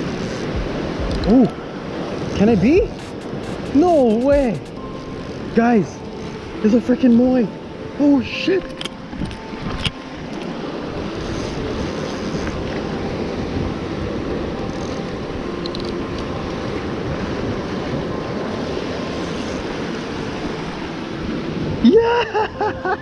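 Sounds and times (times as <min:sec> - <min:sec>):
wind buffeting microphone: 0:00.0 - 0:06.6
surf washing over rocks: 0:00.0 - 0:23.0.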